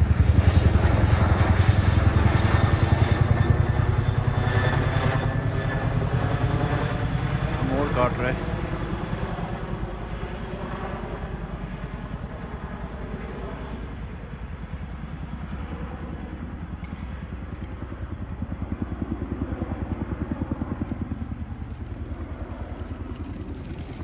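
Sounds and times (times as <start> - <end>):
helicopter rotor thudding: 19.7 - 24.0.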